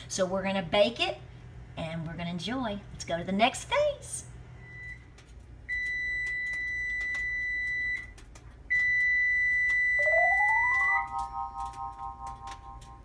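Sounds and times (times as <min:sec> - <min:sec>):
high-pitched timer beeps: 0:09.8 - 0:11.3.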